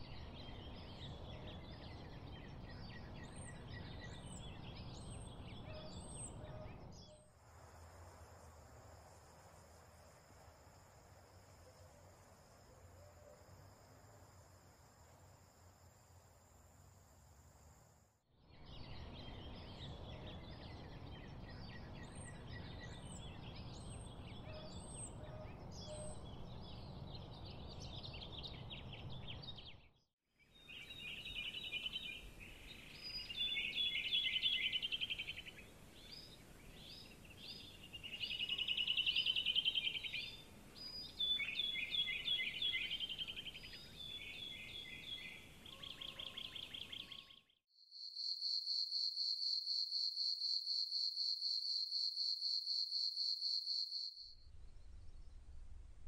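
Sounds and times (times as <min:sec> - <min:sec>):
birds chirping: 0:30.8 - 0:47.5
low steady rumble: 0:54.4 - 0:56.0.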